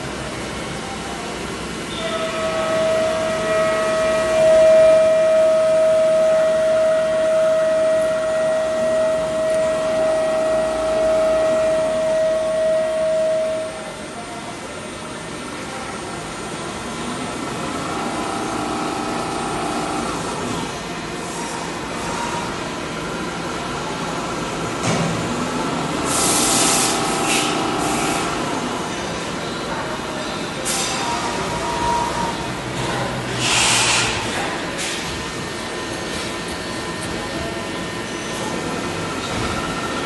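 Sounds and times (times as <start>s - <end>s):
lathe whining: 17.3s - 20.7s, 25.9s - 28.9s.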